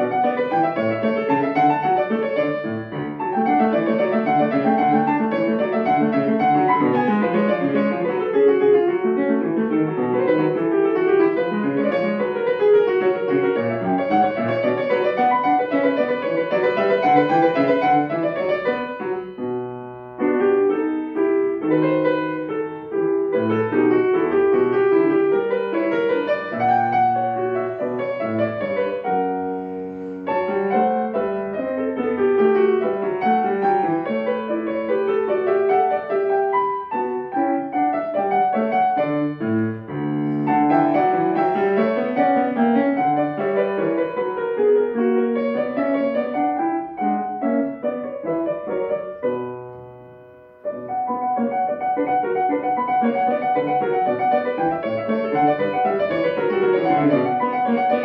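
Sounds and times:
grand piano playing classical: 0.0 - 58.0.

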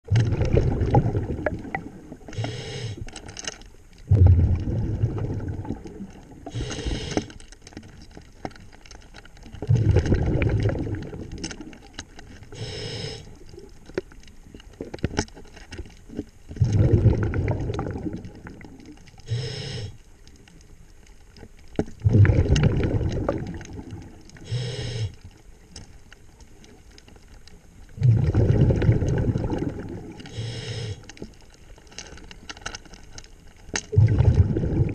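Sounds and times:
exhaled air bubbling underwater: 0.0 - 3.2, 3.9 - 15.2, 16.0 - 31.5, 33.6 - 34.9
regulator hiss on inhale: 2.3 - 3.3, 6.4 - 7.5, 12.3 - 13.6, 19.2 - 20.2, 24.3 - 25.4, 30.2 - 31.3.

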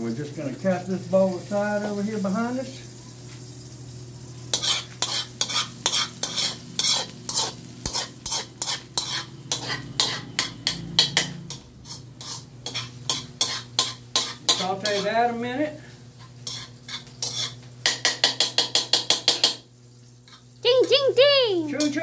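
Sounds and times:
light sizzle of frying: 0.0 - 22.0
metal spoon scraping a wok: 4.5 - 15.2, 16.2 - 19.6, 20.3 - 20.5.

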